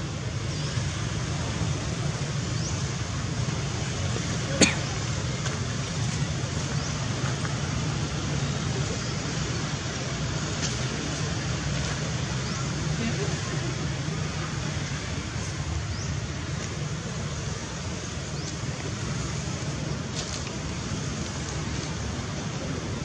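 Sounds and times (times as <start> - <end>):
outdoor background noise: 0.0 - 23.0.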